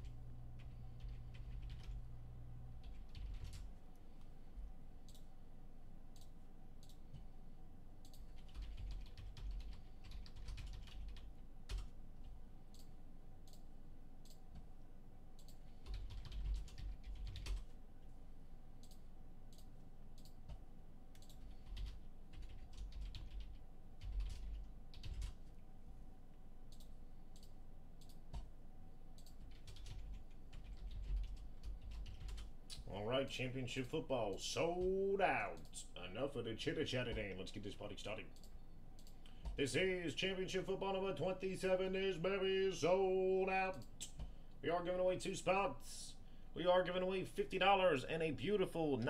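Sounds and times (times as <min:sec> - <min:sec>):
faint steady hum: 0:00.0 - 0:49.0
typing on computer keyboard: 0:00.6 - 0:02.0, 0:02.8 - 0:03.7, 0:08.0 - 0:11.9, 0:15.4 - 0:17.7, 0:21.2 - 0:25.4, 0:29.2 - 0:32.5.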